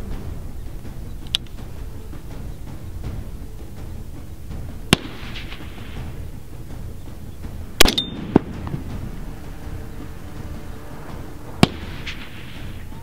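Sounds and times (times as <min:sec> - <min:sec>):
rifle shots: 0:07.8 - 0:08.7.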